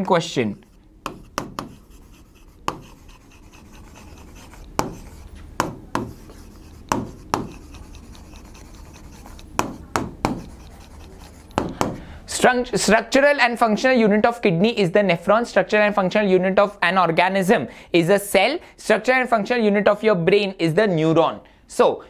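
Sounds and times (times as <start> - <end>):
pen tapping and scraping on board: 0.6 - 12.0.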